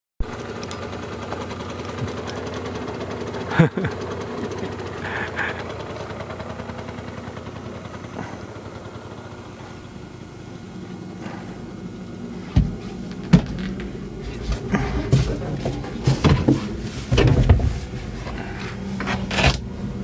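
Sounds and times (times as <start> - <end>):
cart wheels rattling and rumbling: 12.4 - 20.0.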